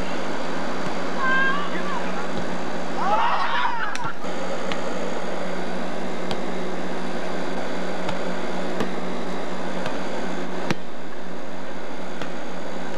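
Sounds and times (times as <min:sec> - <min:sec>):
steady hiss with hum: 0:00.0 - 0:12.9
volleyball being struck: 0:06.2 - 0:06.5, 0:07.6 - 0:11.0, 0:12.1 - 0:12.5.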